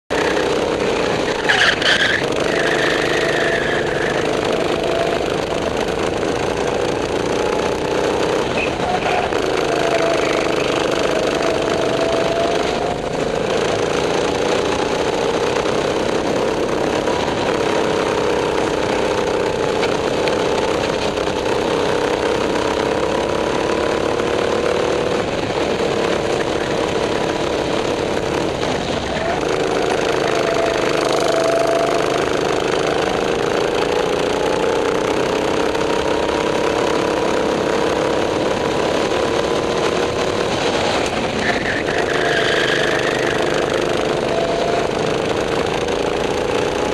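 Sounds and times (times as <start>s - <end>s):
go-kart engine running: 0.1s - 46.9s
high squeal: 41.3s - 44.9s.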